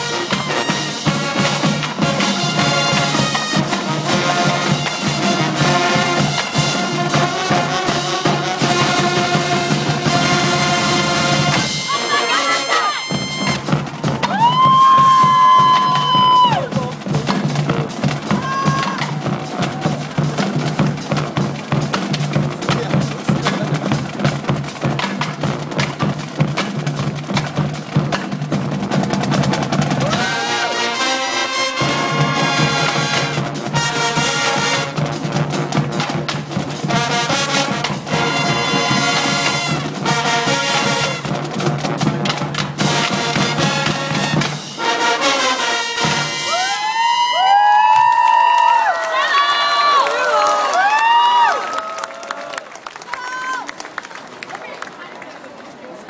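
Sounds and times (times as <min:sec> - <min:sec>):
brass playing held chords: 0:00.0 - 0:13.8, 0:30.4 - 0:35.6, 0:36.8 - 0:41.4, 0:42.8 - 0:46.6
marching drums: 0:00.0 - 0:48.9
crowd cheering and whistling: 0:11.7 - 0:16.9, 0:30.0 - 0:30.8, 0:46.5 - 0:53.8.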